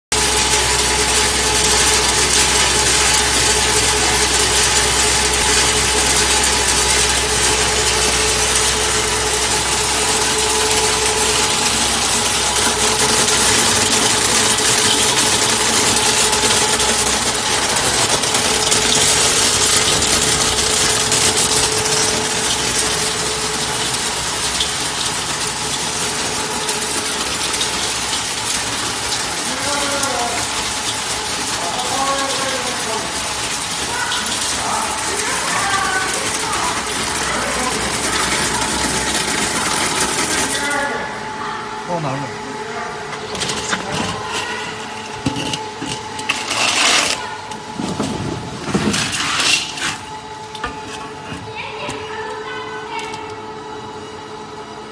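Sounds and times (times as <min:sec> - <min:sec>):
machine humming: 0:00.1 - 0:54.9
kernels pattering off belt: 0:00.2 - 0:41.0.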